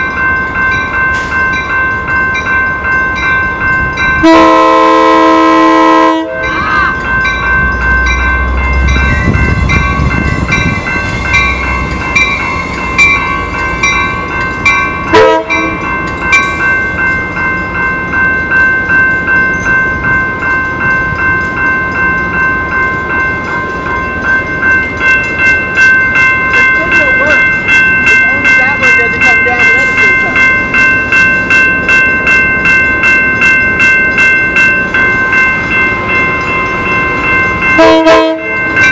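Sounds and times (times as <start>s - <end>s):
passenger train rumbling: 0.0s - 38.9s
railroad crossing bell ringing: 0.0s - 38.9s
train horn blast: 4.2s - 7.0s, 15.1s - 15.7s, 37.8s - 38.5s.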